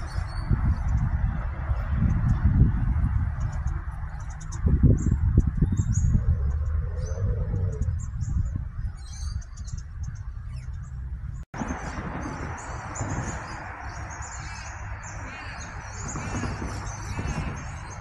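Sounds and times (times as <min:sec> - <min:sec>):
birds chirping: 0:00.0 - 0:18.0
steady low rumble: 0:00.0 - 0:18.0.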